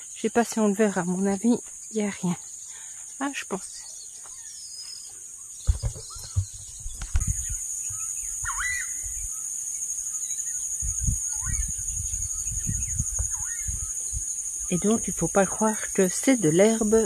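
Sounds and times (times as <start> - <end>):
high-pitched insect chorus: 0.0 - 17.0
short bird calls: 4.4 - 9.4.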